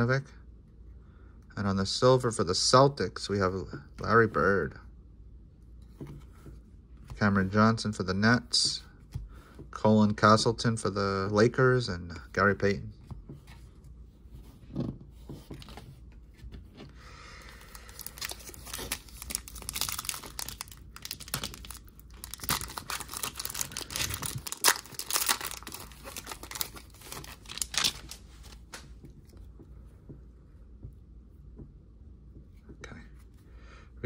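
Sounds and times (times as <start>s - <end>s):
foil wrapper tearing and crinkling: 17.7s - 28.2s.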